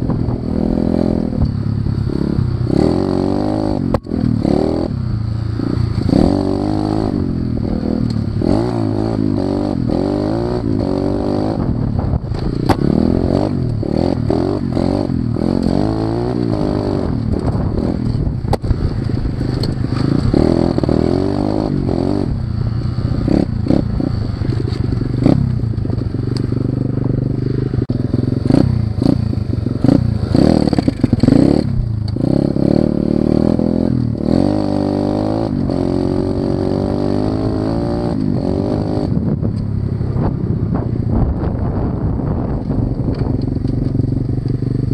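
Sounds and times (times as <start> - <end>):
motorcycle engine revving: 0.0 - 44.9
bike clatter over rough ground: 30.6 - 32.2.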